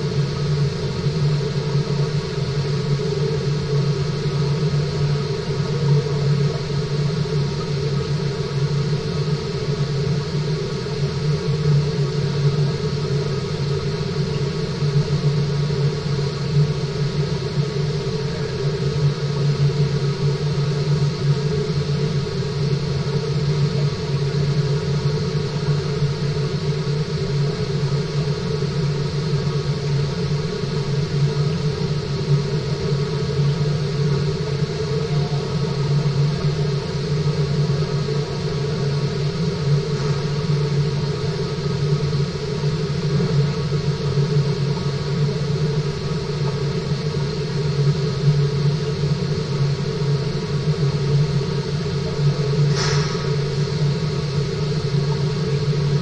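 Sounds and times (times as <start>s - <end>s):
water circulation hum and rush: 0.0s - 56.0s
brief sharp sound: 52.7s - 53.7s.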